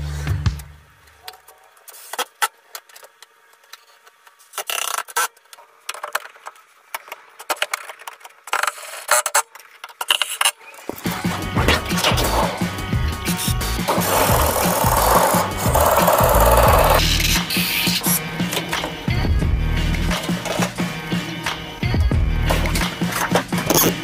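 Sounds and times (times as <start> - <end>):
scraping on wood: 10.9 - 19.0
metal parts clicking and rattling: 22.5 - 24.0.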